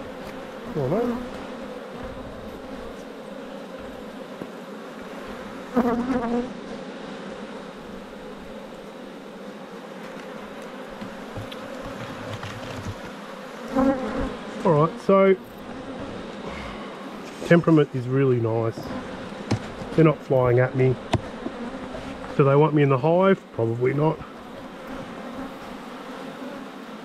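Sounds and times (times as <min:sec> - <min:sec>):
honeybees buzzing: 0:00.0 - 0:27.0.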